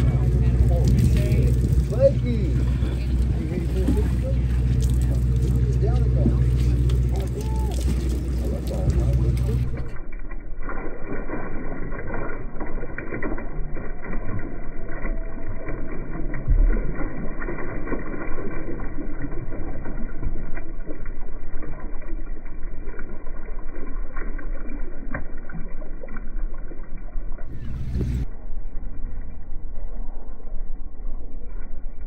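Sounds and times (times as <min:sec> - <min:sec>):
boat engine rumble: 0:00.0 - 0:32.0
water splashing and sloshing: 0:00.0 - 0:32.0.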